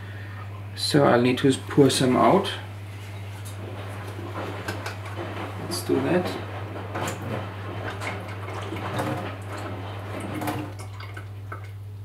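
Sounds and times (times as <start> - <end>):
water pouring and splashing: 3.5 - 11.8.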